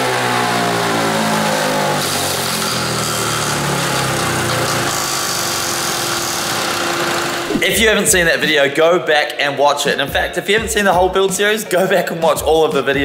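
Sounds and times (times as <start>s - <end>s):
go-kart engine running hard: 0.0s - 7.6s.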